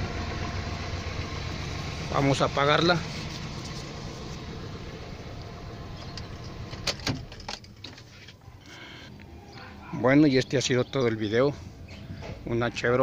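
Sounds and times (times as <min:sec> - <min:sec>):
pickup engine idling: 0:00.0 - 0:09.9.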